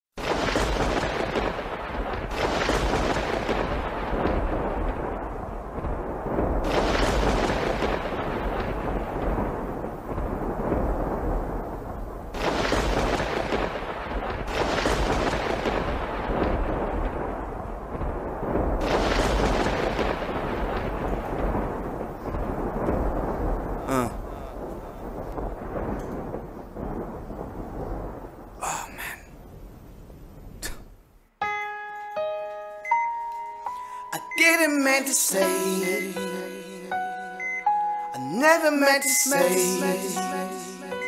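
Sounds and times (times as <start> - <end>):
deep rumbling booms: 0.2 - 31.0.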